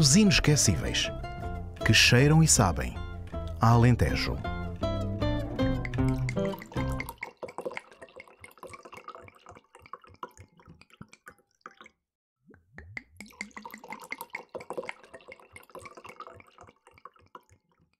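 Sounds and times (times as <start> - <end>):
water dripping and trickling: 5.7 - 17.9.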